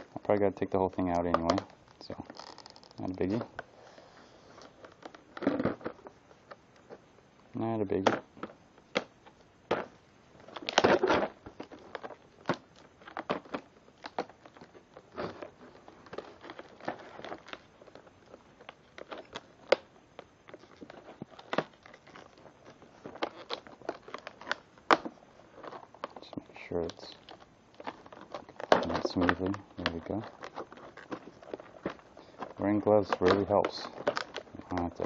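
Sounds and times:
plastic packaging crackling: 0.0 - 7.0, 7.9 - 35.0
knife cutting plastic: 20.5 - 35.0.

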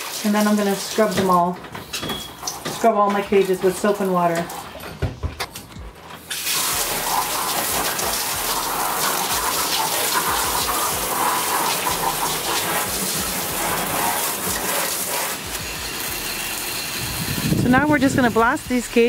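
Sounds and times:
shower water spraying: 0.0 - 1.6, 6.2 - 19.0.

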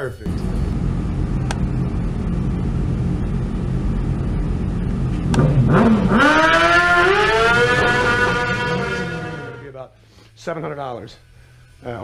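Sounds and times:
motorcycle engine idling and revving: 0.3 - 9.6.

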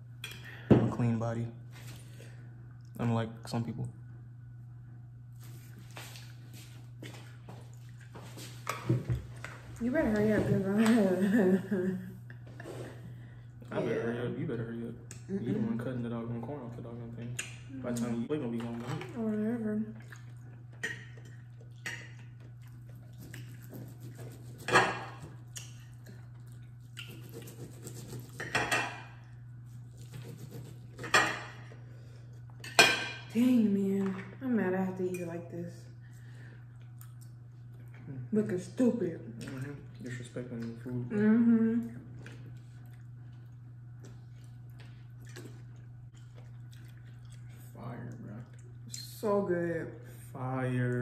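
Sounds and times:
steady low hum: 0.0 - 51.0
wet chewing: 20.0 - 24.6, 25.4 - 28.4, 42.1 - 49.2.

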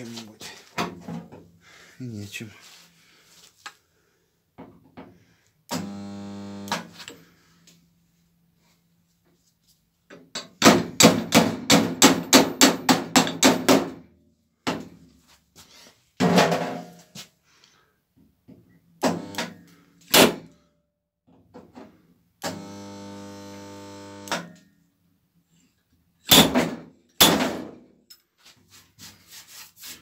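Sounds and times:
stud welder buzzing: 5.7 - 7.0, 19.0 - 19.5, 22.4 - 24.5.

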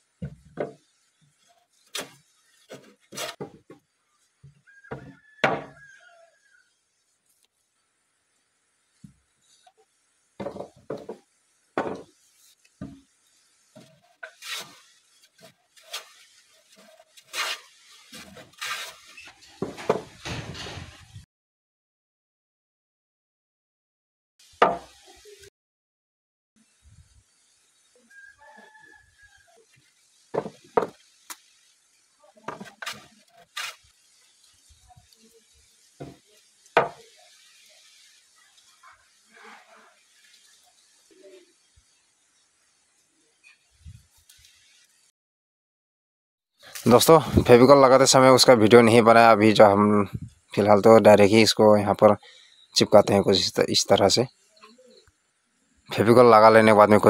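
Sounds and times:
wooden planks knocking: 0.2 - 0.9, 1.9 - 3.8, 4.4 - 5.8, 10.4 - 11.2, 11.8 - 12.2, 12.8 - 13.1, 19.6 - 21.0, 30.3 - 31.0, 32.5 - 33.1, 36.0 - 36.2, 36.8 - 37.0
wooden planks scraping: 0.2 - 5.8, 13.7 - 21.2, 32.4 - 34.0.

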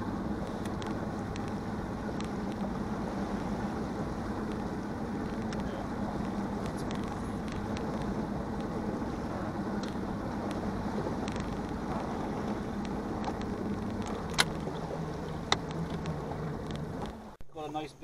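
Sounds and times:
boat motor hum: 0.0 - 18.0
water noise: 0.0 - 18.0
wind: 0.0 - 18.0.

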